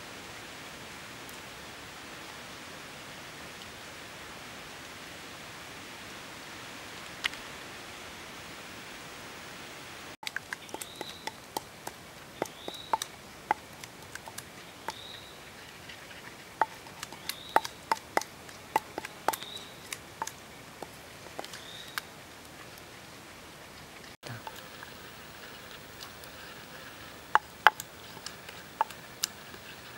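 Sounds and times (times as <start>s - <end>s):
pestle pounding in wooden mortar: 27.2s - 29.9s.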